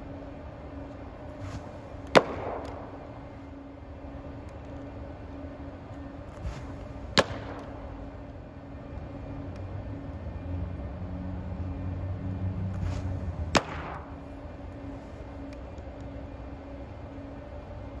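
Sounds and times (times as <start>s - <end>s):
low hum: 0.0s - 18.0s
baseball popping into mitt: 1.5s - 3.1s, 6.5s - 7.8s, 12.8s - 14.2s.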